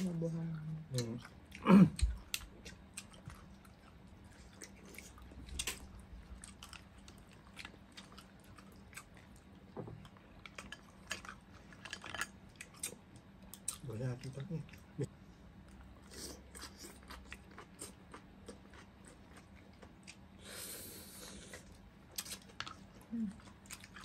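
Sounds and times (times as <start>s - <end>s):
chewing: 0.5s - 15.0s, 15.6s - 20.5s, 21.2s - 24.0s.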